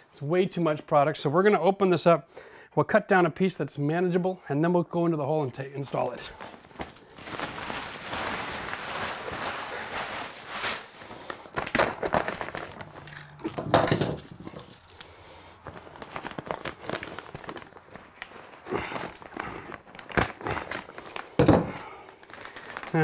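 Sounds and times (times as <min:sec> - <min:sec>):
plastic wrapping crinkling: 0:05.8 - 0:23.0.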